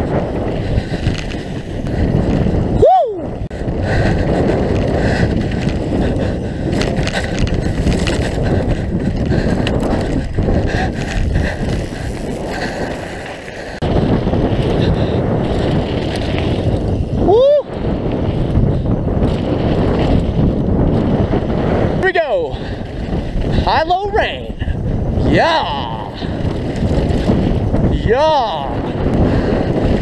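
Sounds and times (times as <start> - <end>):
wind buffeting microphone: 0.0 - 30.0
bike clattering over bumps: 3.5 - 17.2, 26.2 - 27.9.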